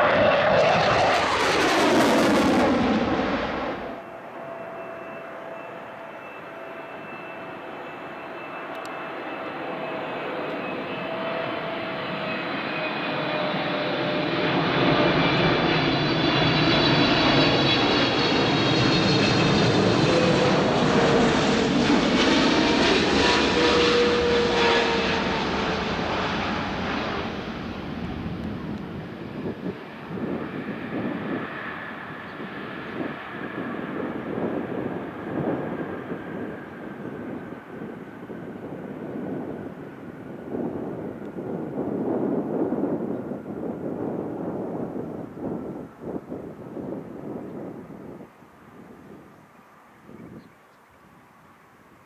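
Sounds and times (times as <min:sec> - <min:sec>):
jet rush falling in pitch: 0:00.0 - 0:06.0, 0:10.5 - 0:30.4
airliner turbofans whining and roaring: 0:00.0 - 0:52.0.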